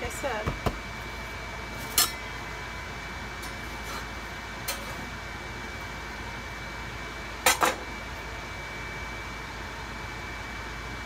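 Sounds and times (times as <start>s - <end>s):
steady hum: 0.0s - 11.0s.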